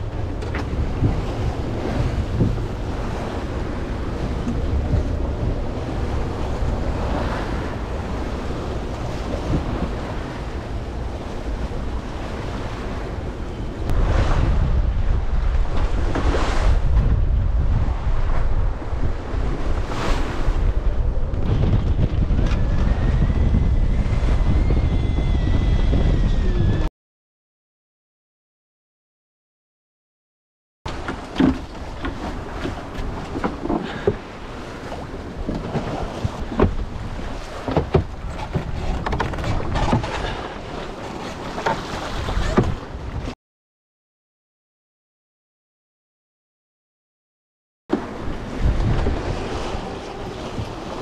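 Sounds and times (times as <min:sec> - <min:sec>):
water rushing along hull: 0:00.0 - 0:26.9, 0:30.9 - 0:43.4, 0:47.9 - 0:51.0
wind buffeting microphone: 0:00.0 - 0:26.9, 0:30.9 - 0:43.4, 0:47.9 - 0:51.0.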